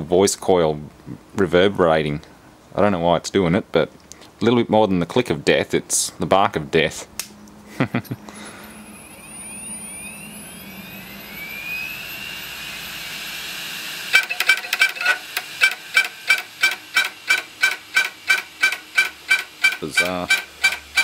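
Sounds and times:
hard drive spinning up whine: 8.3s - 21.0s.

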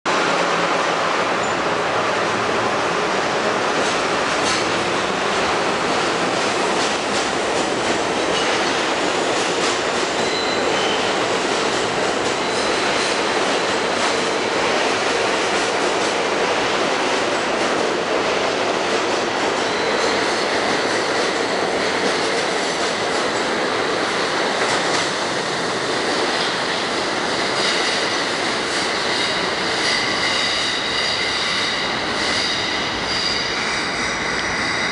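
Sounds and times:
subway train wheels rumbling: 0.1s - 34.9s
high wheel squeal: 10.2s - 11.2s, 29.1s - 34.9s.

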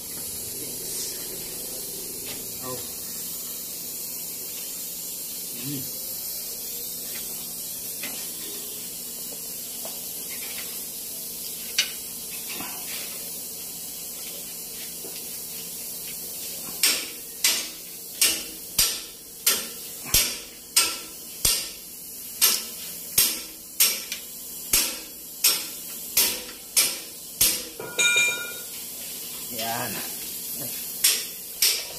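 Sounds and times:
hand tool sharp metallic clicks: 31.0s - 31.9s.

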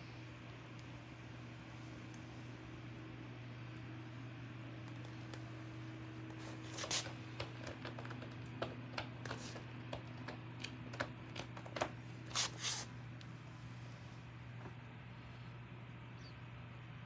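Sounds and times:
steady low hum: 0.0s - 17.0s
light clicks and scuffs: 6.3s - 7.2s, 12.3s - 12.9s.

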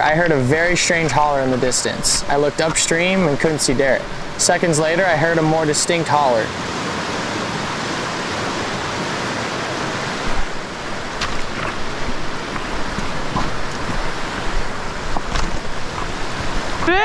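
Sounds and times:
fast river water rushing: 0.0s - 17.0s
wind buffeting microphone: 6.9s - 17.0s.

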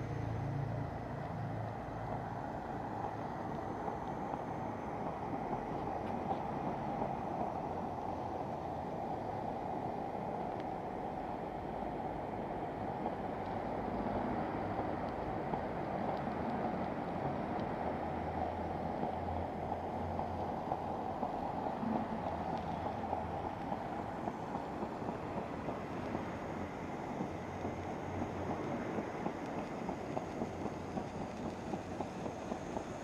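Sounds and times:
steam locomotive hissing: 0.0s - 33.0s.

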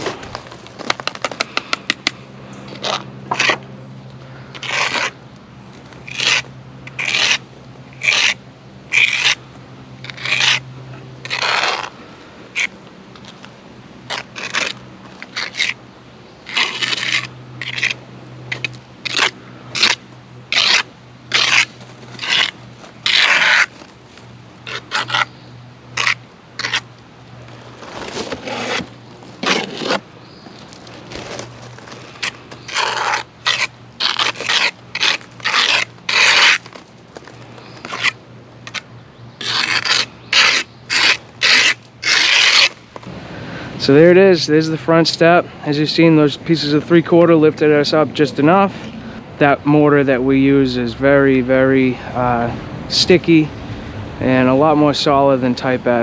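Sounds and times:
trowel scraping mortar: 2.7s - 3.6s, 4.5s - 5.2s, 6.0s - 9.4s, 10.0s - 10.6s, 11.2s - 11.9s, 14.1s - 15.8s, 16.5s - 23.9s, 24.6s - 25.3s, 26.0s - 26.9s, 27.8s - 30.0s, 31.2s - 36.8s, 37.6s - 38.8s, 39.4s - 42.8s.

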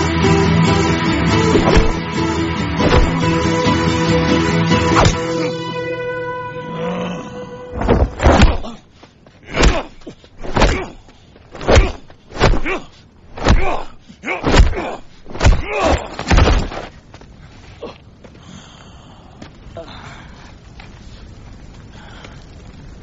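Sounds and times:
heavy punch thuds: 1.5s - 2.0s, 2.8s - 3.3s, 5.0s - 5.3s, 7.8s - 8.7s, 14.4s - 16.7s.

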